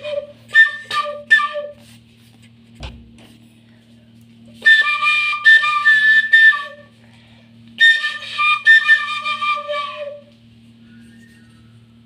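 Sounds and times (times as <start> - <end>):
flute melody: 0.0 - 2.0, 4.5 - 7.0, 7.8 - 12.0
steady low hum: 0.0 - 12.0.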